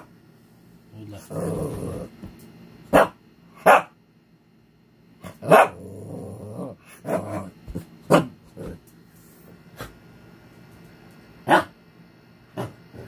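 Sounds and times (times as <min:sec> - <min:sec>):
dog growling: 0:01.2 - 0:02.2, 0:05.2 - 0:08.8
dog barking: 0:02.9 - 0:04.0, 0:05.3 - 0:05.8, 0:11.5 - 0:11.7.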